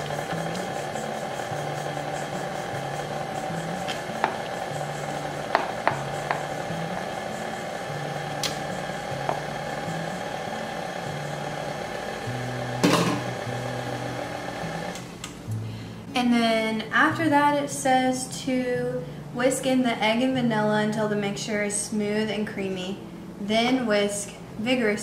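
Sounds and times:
stand mixer motor running: 0.0 - 15.0.

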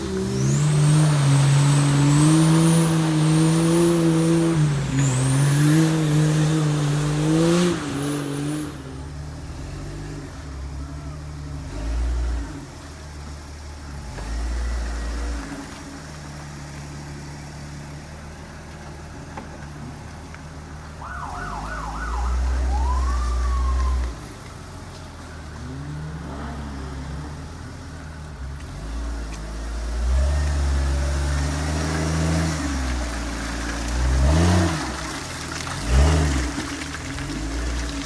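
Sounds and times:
car engine revving: 0.0 - 18.0
warbling whistle: 21.0 - 24.1.

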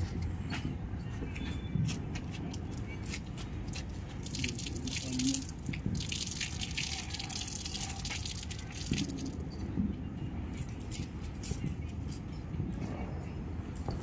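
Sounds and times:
water pouring and splashing: 3.6 - 9.6.

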